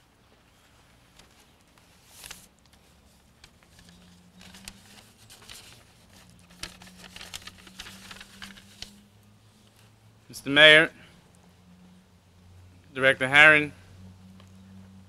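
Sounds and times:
paper rustling and crinkling: 0.5 - 9.0.

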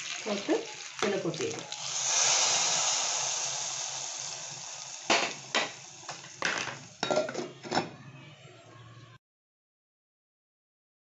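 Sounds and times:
hot oil hissing: 0.0 - 7.4
cookware knocking: 5.1 - 8.0.

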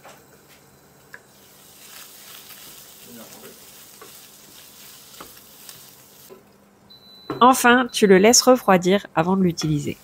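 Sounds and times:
fish sizzling in a pan: 1.3 - 6.3.

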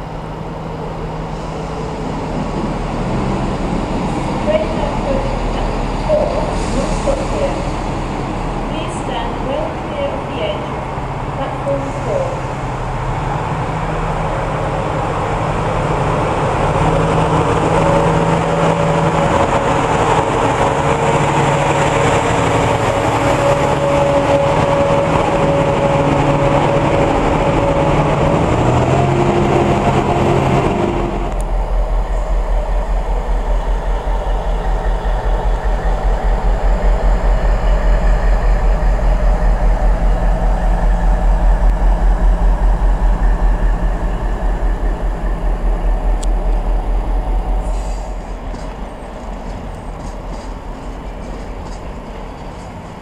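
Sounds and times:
freight train rumbling past: 0.0 - 53.0
diesel engine running: 14.6 - 51.8
steady whine: 29.0 - 52.0.

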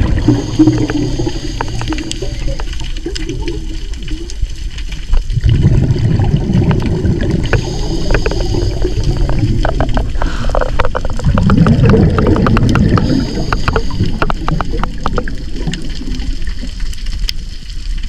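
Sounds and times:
gurgling rush of exhaled bubbles: 0.0 - 17.9
sharp clicks: 7.5 - 16.0.

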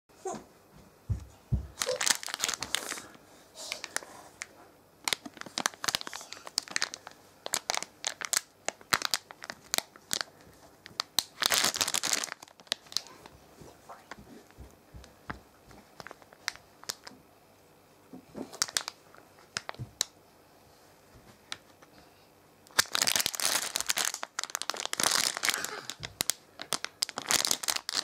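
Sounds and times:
plastic snack packaging crinkling: 1.8 - 13.3, 15.8 - 17.2, 18.4 - 20.1, 22.7 - 28.0.

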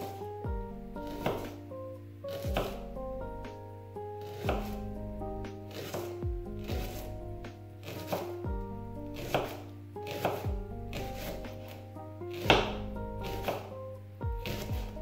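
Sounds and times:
background music with beat: 0.0 - 15.0
knife chopping on cutting board: 1.0 - 1.6, 2.3 - 2.8, 4.2 - 4.8, 5.7 - 7.1, 7.8 - 8.4, 9.2 - 13.7, 14.4 - 14.9.

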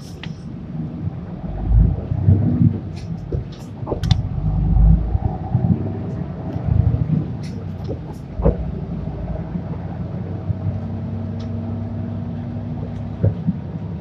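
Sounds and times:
bus diesel engine running: 0.0 - 14.0
light rattling clicks: 2.9 - 4.4.

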